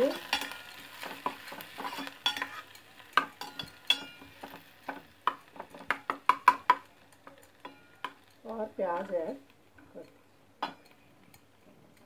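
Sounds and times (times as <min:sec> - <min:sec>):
metal spoon scraping pan: 0:00.0 - 0:05.0
light sizzle: 0:00.0 - 0:12.0.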